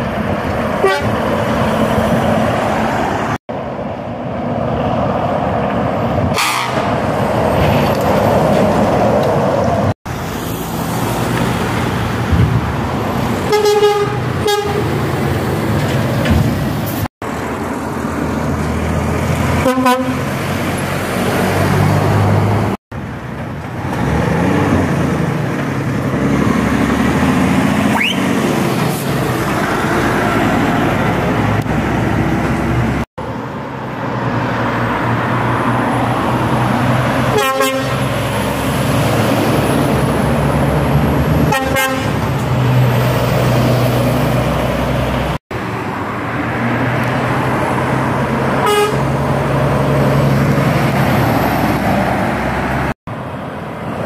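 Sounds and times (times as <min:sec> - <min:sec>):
lorries driving past: 0:00.0 - 0:54.0
truck horn toots: 0:00.8 - 0:01.2, 0:06.3 - 0:07.0, 0:13.5 - 0:15.0, 0:19.6 - 0:20.3, 0:37.3 - 0:38.1, 0:41.4 - 0:42.2, 0:48.6 - 0:49.1.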